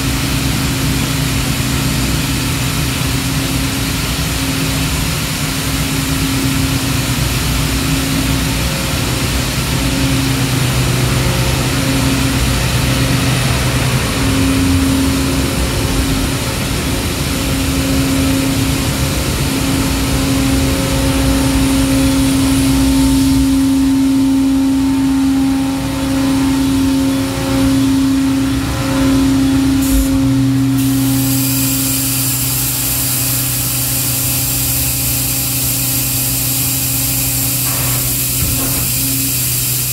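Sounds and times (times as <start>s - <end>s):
machine droning hum: 0.0s - 39.9s
high hiss: 29.8s - 39.9s.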